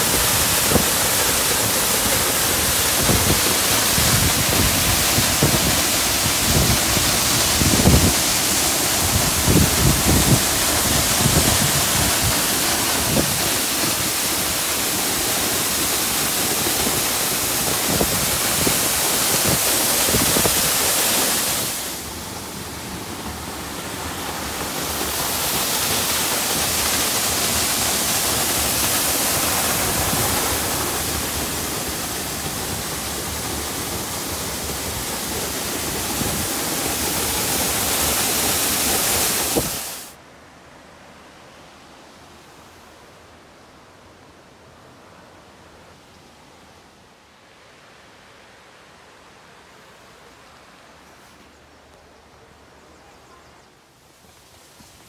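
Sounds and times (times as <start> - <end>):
waterfall rushing: 0.0 - 40.2.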